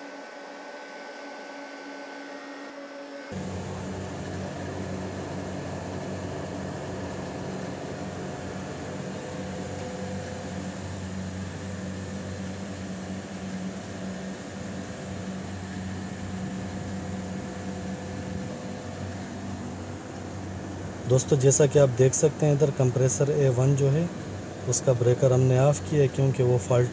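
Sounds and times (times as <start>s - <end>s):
chiller mechanical hum: 0.0s - 26.9s.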